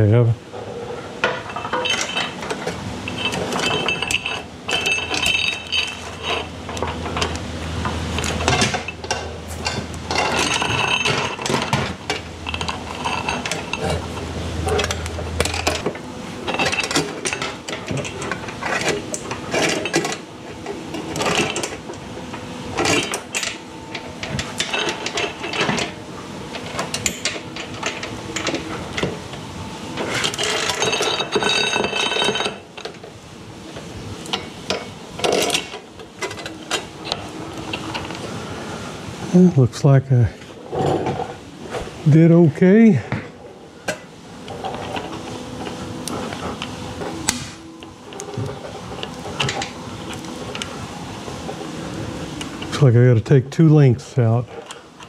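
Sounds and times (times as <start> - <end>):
drive chain clinking and rattling: 1.2 - 7.4, 8.2 - 20.2, 22.8 - 29.1, 30.0 - 32.9.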